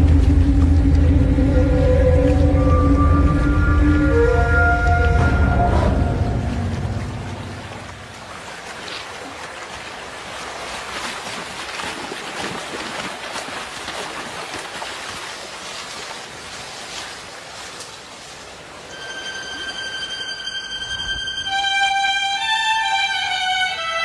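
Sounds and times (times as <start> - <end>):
rushing river water: 0.0 - 24.0
bear splashing through water: 5.0 - 18.5.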